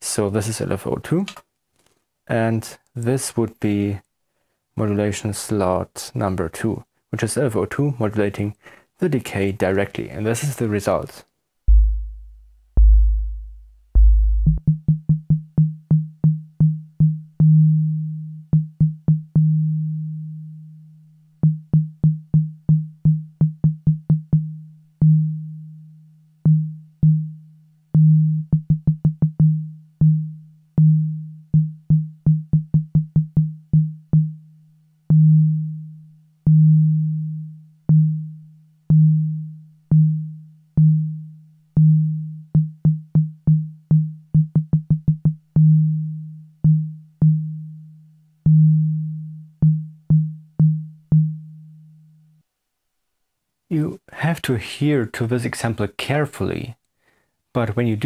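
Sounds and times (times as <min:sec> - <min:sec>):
synthesizer low tone notes: 0:11.7 - 0:20.7.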